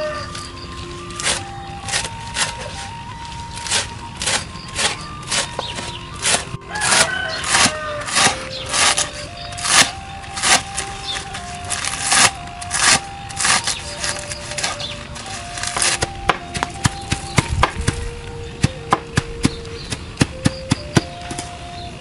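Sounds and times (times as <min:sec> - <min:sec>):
background music simple melody: 0:00.0 - 0:22.0
knife chopping on wooden board: 0:03.6 - 0:10.7.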